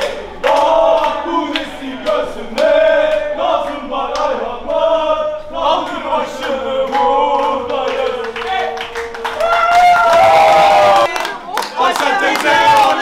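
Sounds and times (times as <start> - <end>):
sharp beats or claps: 0.0 - 3.3
crowd singing along: 0.0 - 9.5, 10.6 - 13.0.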